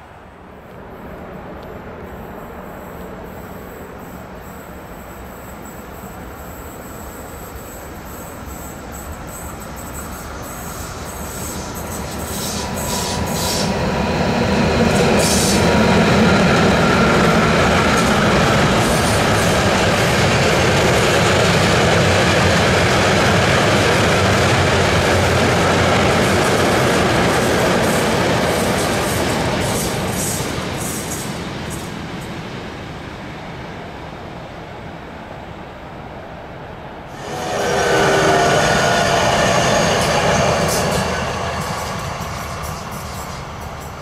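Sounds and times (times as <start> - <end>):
freight train wheels clattering: 37.5 - 44.0.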